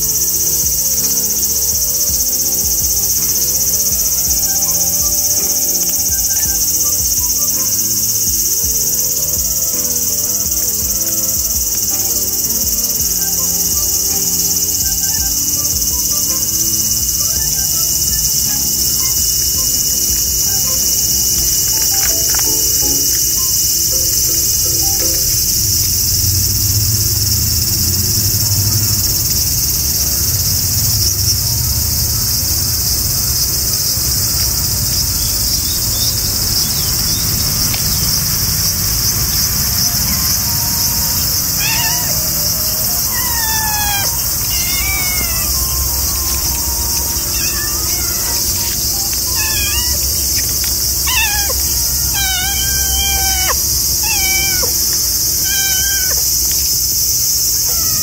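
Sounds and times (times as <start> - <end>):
high-pitched insect chorus: 0.0 - 58.0
cat meowing: 9.2 - 25.4, 40.1 - 56.6, 57.5 - 58.0.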